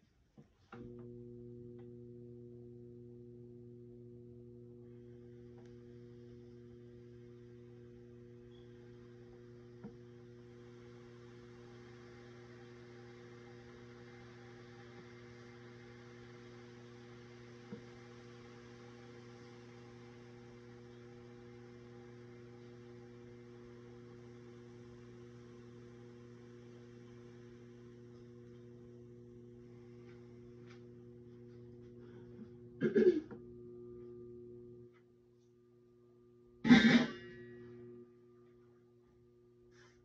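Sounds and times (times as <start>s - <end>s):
electric skillet hum: 0.8s - 35.0s, 36.1s - 38.3s
food steaming hiss: 7.1s - 28.6s.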